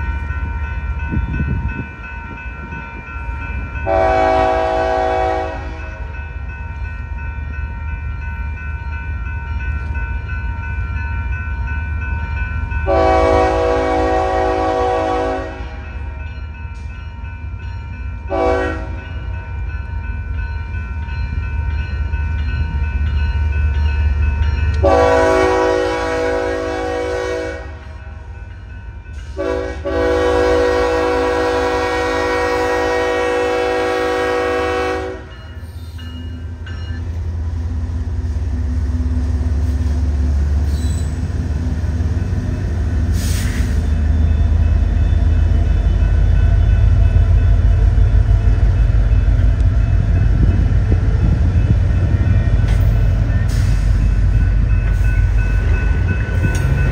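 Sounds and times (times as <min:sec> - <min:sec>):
passing train rumble: 0:00.0 - 0:56.9
locomotive air horn blasts: 0:03.8 - 0:06.0, 0:12.9 - 0:15.9, 0:18.3 - 0:19.1, 0:24.8 - 0:28.0, 0:29.3 - 0:35.4.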